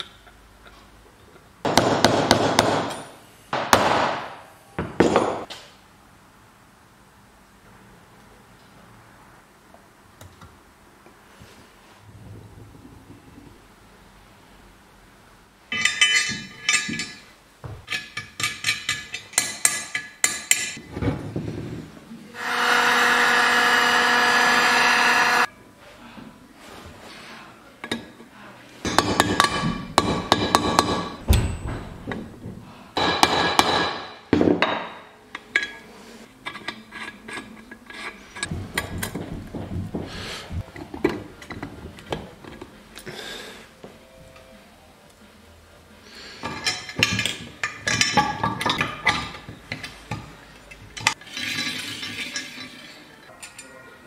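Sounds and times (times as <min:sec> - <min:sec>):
hammer strikes on metal: 0:01.7 - 0:05.5, 0:28.9 - 0:31.9, 0:33.0 - 0:35.0
heat gun blower running: 0:22.4 - 0:25.5.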